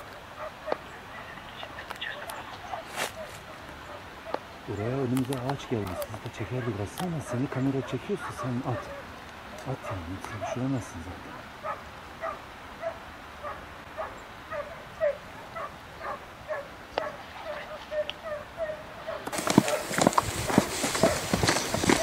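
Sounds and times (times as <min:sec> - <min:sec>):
dogs barking: 0:00.0 - 0:01.3, 0:02.2 - 0:04.8, 0:05.4 - 0:22.0
rustling: 0:01.2 - 0:07.6, 0:16.9 - 0:18.4, 0:19.2 - 0:22.0.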